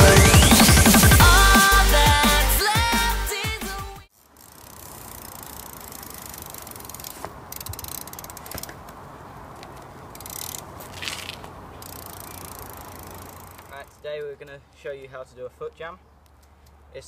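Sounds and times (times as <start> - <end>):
steady outdoor noise: 0.0 - 17.0
bike hub ratcheting: 4.1 - 9.0, 10.1 - 13.9.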